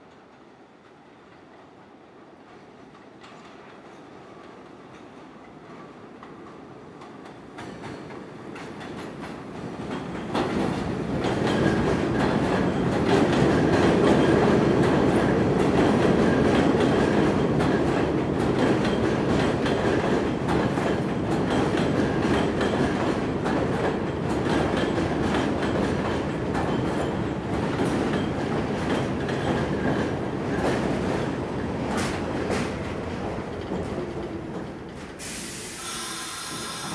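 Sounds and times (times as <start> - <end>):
train wheels clacking over rail joints: 6.2 - 35.7.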